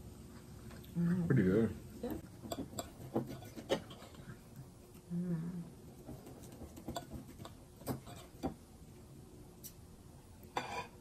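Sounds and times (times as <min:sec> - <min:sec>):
person humming: 0:05.1 - 0:05.8.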